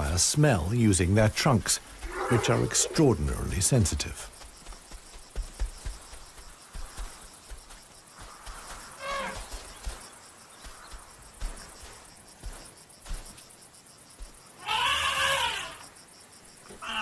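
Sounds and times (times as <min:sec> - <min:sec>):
young elephant calling: 0:14.6 - 0:15.8.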